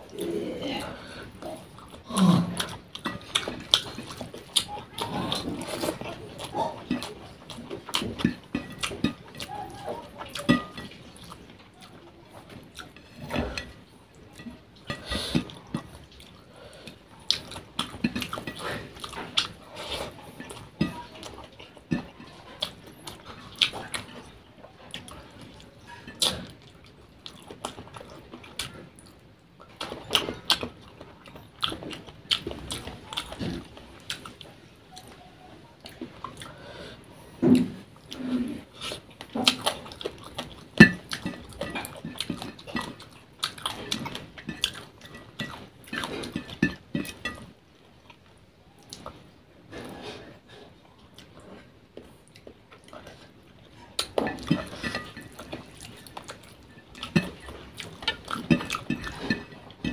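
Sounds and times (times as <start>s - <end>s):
wet chewing and lip smacking: 1.3s - 13.5s, 50.8s - 59.9s.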